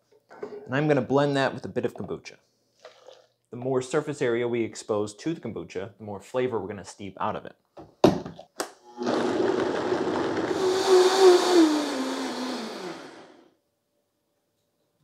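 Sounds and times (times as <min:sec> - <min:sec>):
blender motor running: 0:08.9 - 0:13.4.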